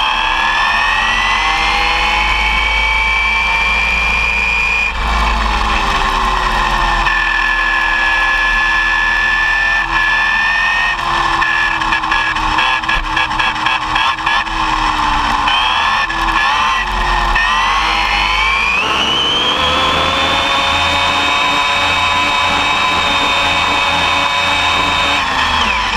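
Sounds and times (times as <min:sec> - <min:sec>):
electric motor whining: 0:00.0 - 0:25.9
tyre and road noise: 0:02.0 - 0:25.9.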